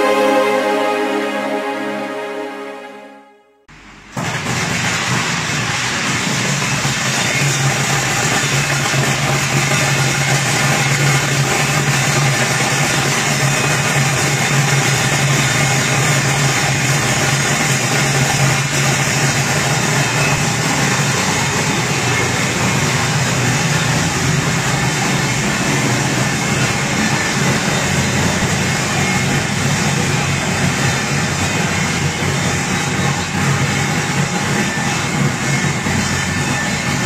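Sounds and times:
sorting machine humming: 0:16.8 - 0:37.0.

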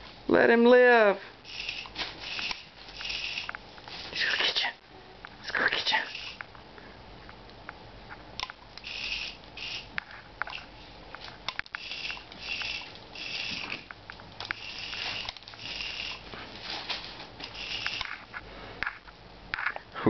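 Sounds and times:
sharp clicks and taps: 0:11.2 - 0:12.7.

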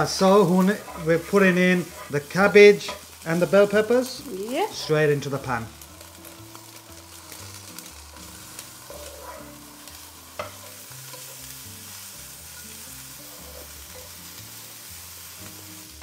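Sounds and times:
food sizzling in frying pan: 0:00.0 - 0:16.0
spatula scraping and tapping pan: 0:00.1 - 0:03.2, 0:08.5 - 0:09.6, 0:10.3 - 0:11.5, 0:12.5 - 0:14.2.

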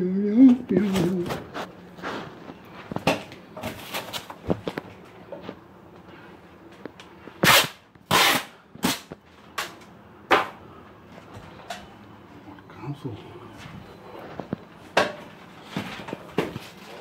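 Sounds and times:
masking tape ripping off roll: 0:07.4 - 0:09.1.

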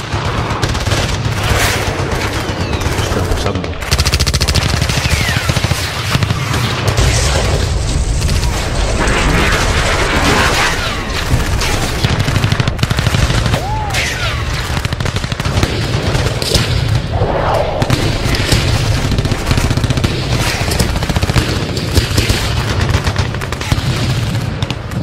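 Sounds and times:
automatic gunfire bursts: 0:00.0 - 0:07.0
heavy booms: 0:15.5 - 0:21.7.

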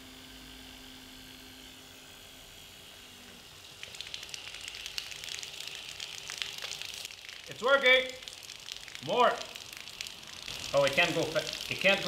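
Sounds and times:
small motor whine: 0:00.0 - 0:03.7
water spattering: 0:03.6 - 0:12.0.

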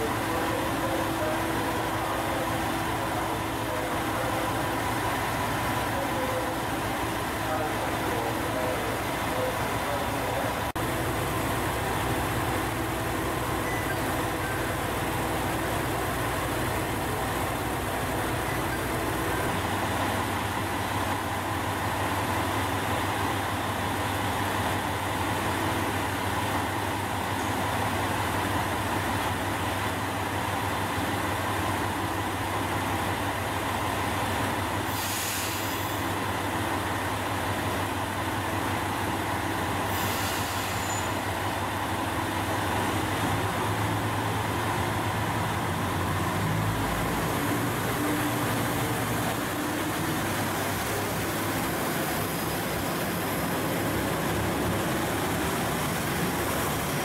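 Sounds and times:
diesel train engines idling: 0:00.0 - 0:57.0
air hiss: 0:34.9 - 0:36.0, 0:39.9 - 0:41.2.

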